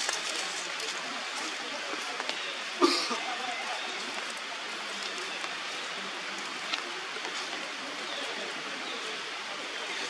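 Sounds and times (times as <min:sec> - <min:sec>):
steady hissing noise: 0:00.0 - 0:10.0.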